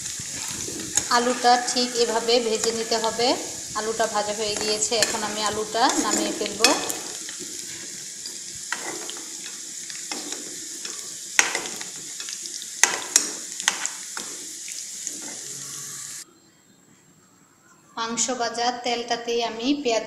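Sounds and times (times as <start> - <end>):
potatoes sizzling in hot oil: 0.0 - 16.2
metal spatula scraping pan: 0.3 - 14.4.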